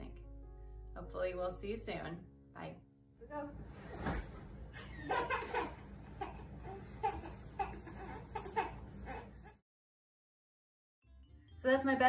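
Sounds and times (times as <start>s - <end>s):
small children laughing: 4.8s - 9.6s.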